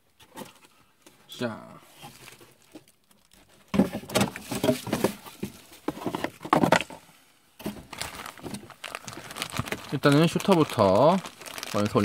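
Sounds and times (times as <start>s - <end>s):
plastic packaging crinkling: 2.0s - 5.8s, 7.6s - 12.0s.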